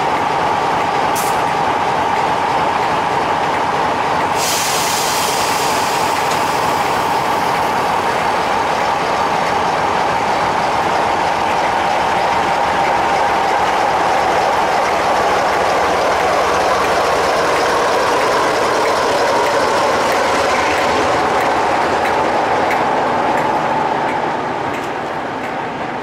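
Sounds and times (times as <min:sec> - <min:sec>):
diesel locomotive engine running: 0:00.0 - 0:26.0
air hiss: 0:04.3 - 0:07.5.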